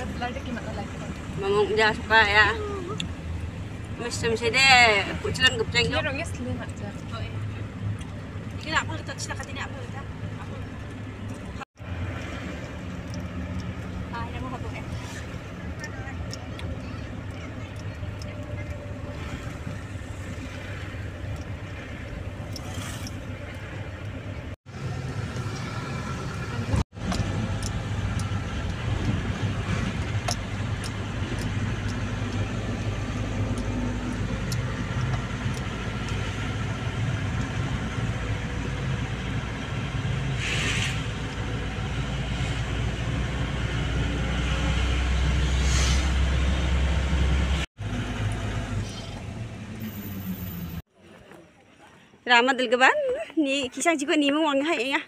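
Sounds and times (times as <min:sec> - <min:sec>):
car driving low rumble: 0:00.0 - 0:51.8
short hisses: 0:40.4 - 0:41.2.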